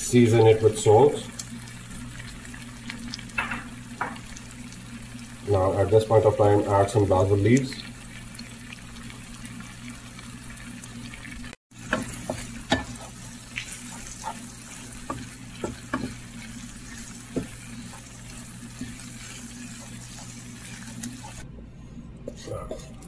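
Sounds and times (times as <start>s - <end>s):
chutney sizzling in a frying pan: 0.0s - 21.4s
wooden spoon scraping a pan: 11.8s - 21.4s.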